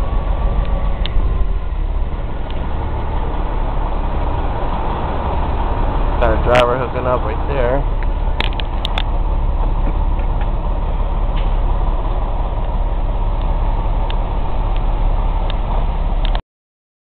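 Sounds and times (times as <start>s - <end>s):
diesel truck engine rumble: 0.0s - 16.4s
cab creaks and clicks: 8.0s - 9.2s.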